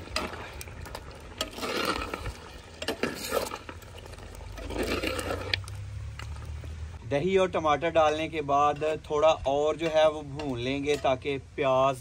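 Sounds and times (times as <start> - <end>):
metal ladle scraping a pot: 0.0 - 6.5.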